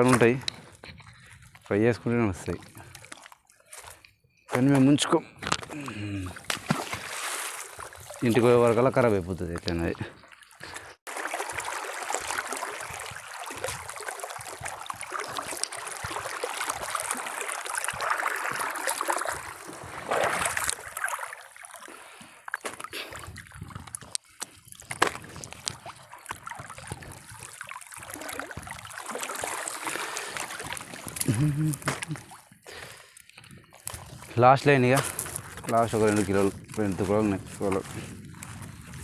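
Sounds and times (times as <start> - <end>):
water splashing and trickling: 0.0 - 4.0, 5.6 - 39.0
fishing net hauled from water: 2.4 - 4.0, 5.5 - 9.2, 10.2 - 38.7
water dripping: 20.5 - 34.0.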